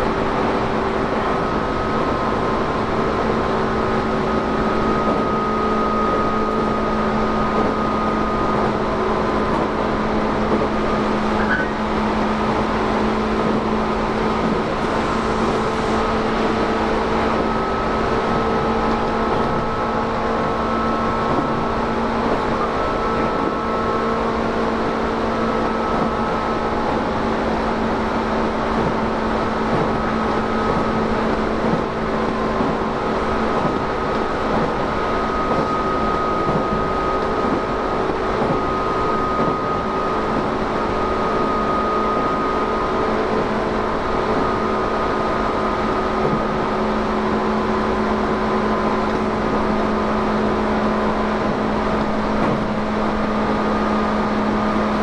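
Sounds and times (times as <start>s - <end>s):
traction motor whine: 0.0s - 55.0s
wheels rumbling on rail: 0.0s - 55.0s.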